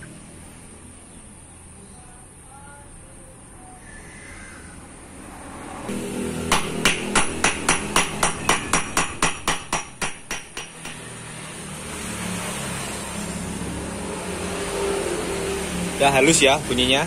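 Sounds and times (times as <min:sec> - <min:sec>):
hammer tapping metal: 0:06.4 - 0:11.2.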